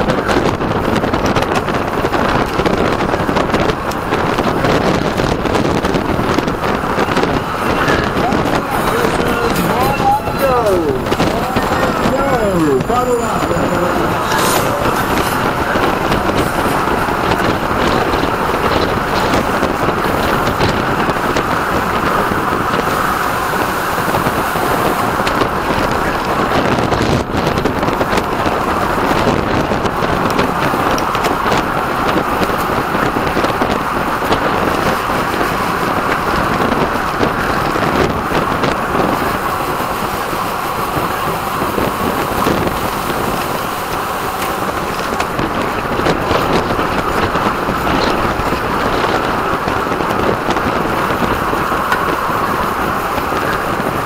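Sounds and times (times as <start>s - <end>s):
bicycle tyre and road noise: 0.0s - 54.0s
wind rushing over microphone: 0.0s - 54.0s.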